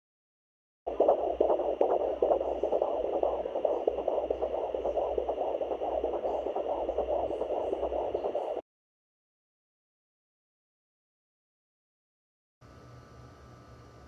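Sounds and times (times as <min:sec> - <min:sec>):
fast whooshing heartbeat pulse: 0:00.9 - 0:08.6
static hiss: 0:00.9 - 0:08.6.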